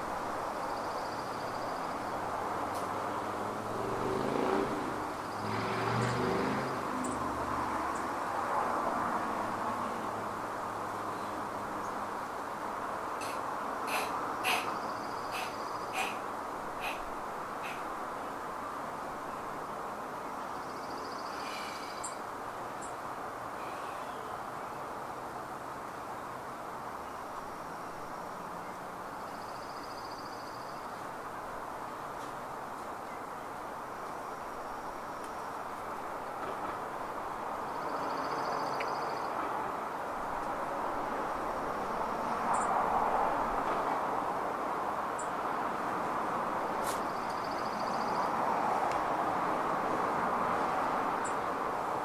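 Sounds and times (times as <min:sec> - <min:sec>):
road traffic: 0:00.0 - 0:52.0
high bird trill: 0:13.2 - 0:16.2, 0:16.8 - 0:17.9.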